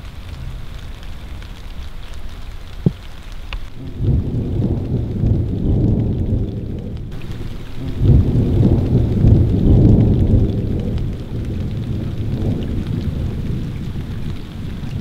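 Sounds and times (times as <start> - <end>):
wind buffeting microphone: 3.8 - 15.0.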